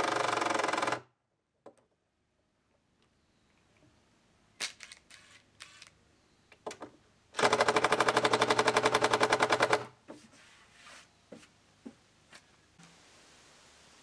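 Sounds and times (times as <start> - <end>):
impact driver rattling: 7.4 - 9.9.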